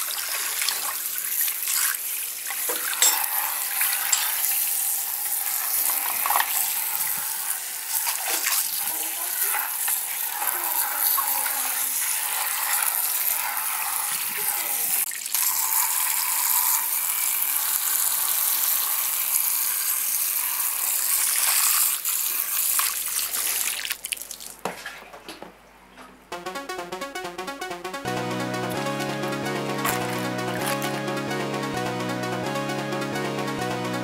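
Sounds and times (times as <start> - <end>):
water jet spraying and hissing: 0.0 - 23.7
electronic music: 26.3 - 34.0.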